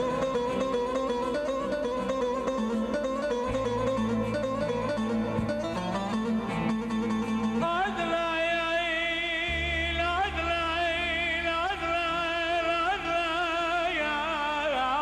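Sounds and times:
man singing into a microphone: 7.6s - 15.0s.

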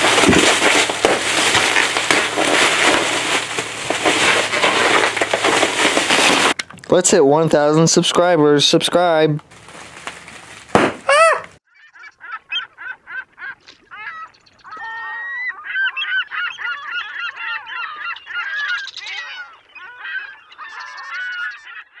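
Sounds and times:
flock of birds honking: 11.8s - 22.0s.

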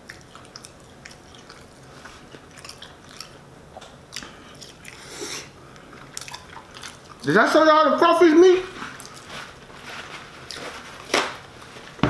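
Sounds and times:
person chewing food: 0.0s - 7.3s, 8.8s - 9.7s, 10.3s - 11.8s
wet mouth clicks and smacks: 5.8s - 7.3s.

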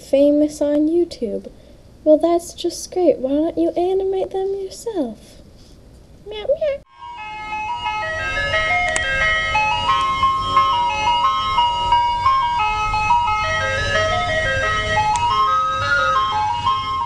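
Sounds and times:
ice cream truck chiming jingle: 6.9s - 17.0s.

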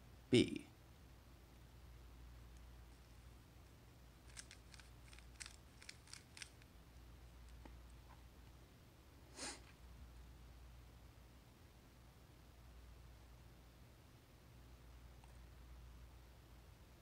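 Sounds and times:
soft rush of noise: 0.0s - 17.0s
puzzle cube layers clicking: 4.3s - 6.7s.

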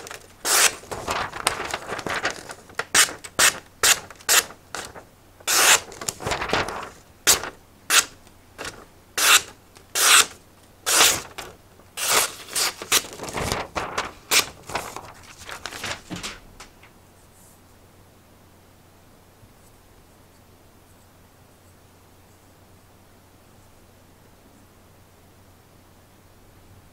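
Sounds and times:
paper tearing and crinkling: 0.0s - 16.7s.

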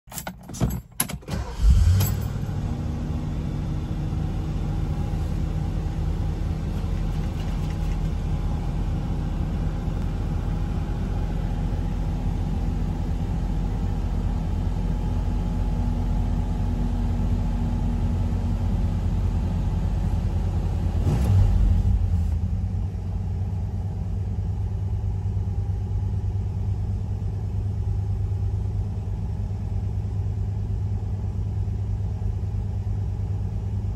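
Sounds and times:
car engine cranking: 0.1s - 2.5s
car engine fast idle: 1.3s - 2.8s.

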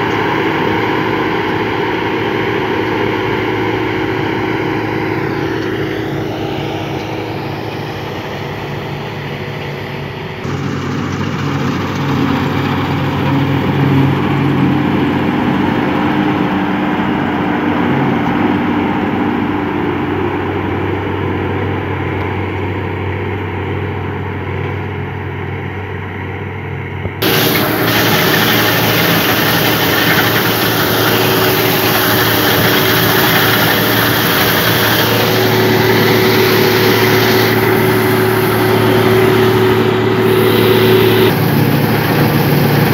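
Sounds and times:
combine harvester engine hum: 0.0s - 42.9s
cutting and threshing rush: 27.2s - 42.9s.

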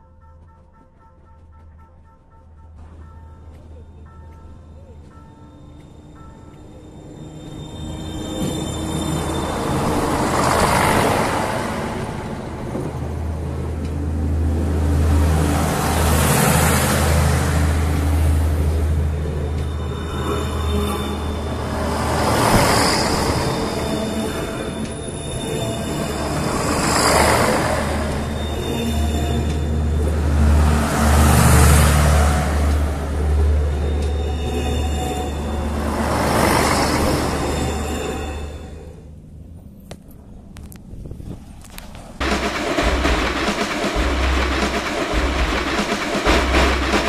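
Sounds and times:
train wheels rolling on rails: 2.8s - 38.7s, 39.6s - 47.0s
wheels on rails: 39.6s - 47.0s
low diesel engine drone: 42.2s - 47.0s.

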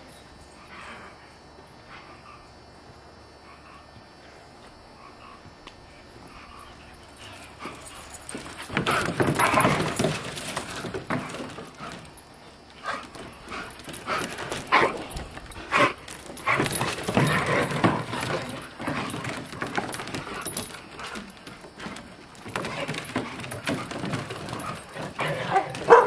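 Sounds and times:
dogs scuffling: 6.2s - 26.0s
paws scrabbling on wooden boards: 6.2s - 26.0s.

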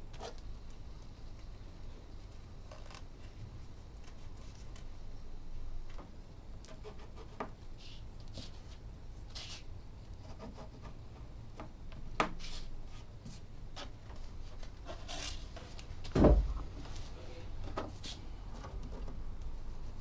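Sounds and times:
dull thump: 16.1s - 16.6s.

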